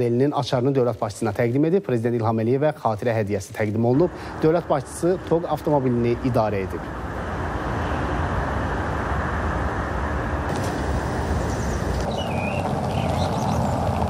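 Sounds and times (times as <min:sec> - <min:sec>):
car road noise: 0:03.5 - 0:14.0.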